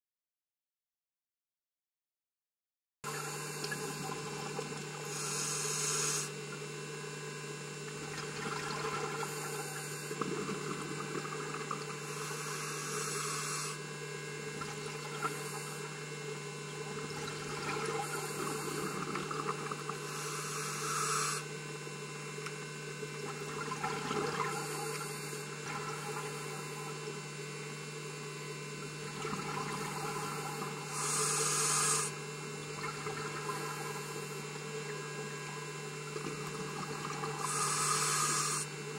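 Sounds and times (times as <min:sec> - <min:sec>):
exhaled bubbles rushing: 0:08.0 - 0:09.3, 0:23.3 - 0:25.0, 0:29.0 - 0:30.8, 0:32.7 - 0:33.9.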